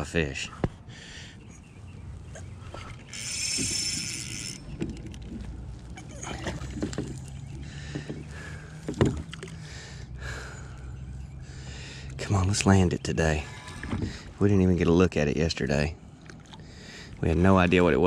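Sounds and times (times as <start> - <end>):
fishing reel drag buzzing: 2.8 - 5.2.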